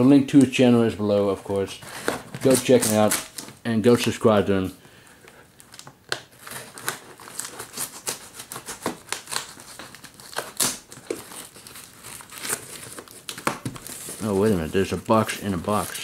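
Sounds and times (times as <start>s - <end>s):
tape and paper ripping: 1.9s - 3.6s, 6.1s - 16.0s.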